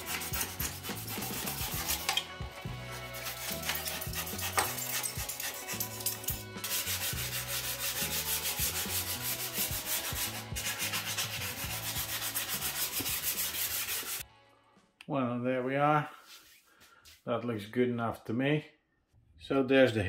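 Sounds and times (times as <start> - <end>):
nail file rubbing strokes: 0.0 - 2.3, 2.9 - 14.2.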